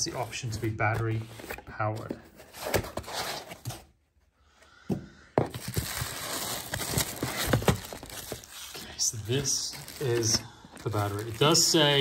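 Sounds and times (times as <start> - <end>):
plastic bag rustling: 5.6 - 12.0.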